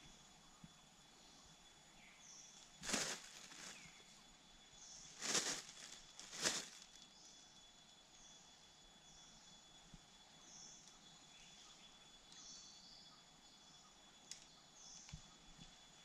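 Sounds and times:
faint bird chirps: 0.0s - 16.0s
high insect drone: 0.0s - 16.0s.

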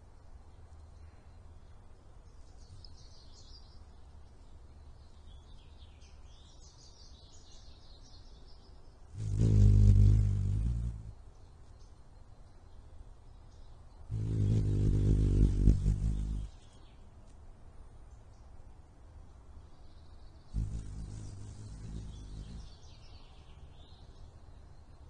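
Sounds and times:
hummingbird wings buzzing: 9.2s - 11.2s, 14.1s - 16.6s, 20.6s - 22.8s
faint high bird chirps: 19.8s - 25.0s.

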